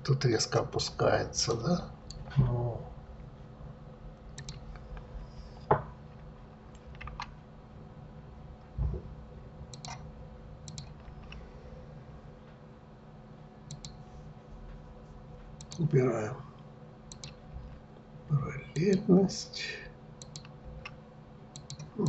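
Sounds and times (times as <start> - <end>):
computer mouse clicks: 4.3 - 5.7, 6.7 - 7.3, 9.7 - 10.0, 10.6 - 11.4, 13.7 - 14.0, 15.6 - 15.8, 17.1 - 17.8, 20.2 - 22.0
keyboard key presses: 4.4 - 4.6.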